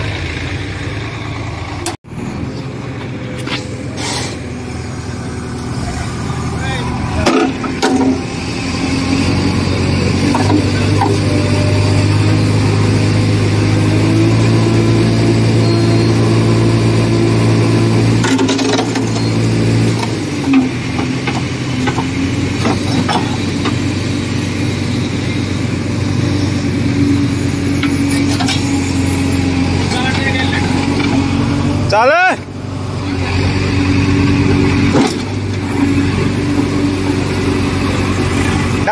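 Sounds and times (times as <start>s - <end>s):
heavy diesel engine under load: 0.0s - 38.9s
metal chain clinking: 18.2s - 19.4s.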